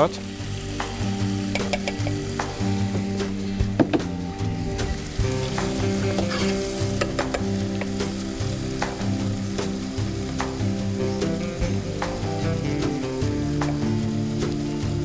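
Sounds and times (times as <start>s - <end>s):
onions sizzling in oil: 0.0s - 15.0s
wooden spoon scraping pan: 6.0s - 7.1s.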